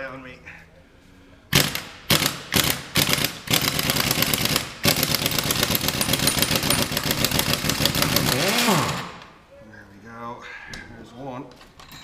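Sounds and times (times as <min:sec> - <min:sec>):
impact wrench hammering: 0:01.5 - 0:09.3.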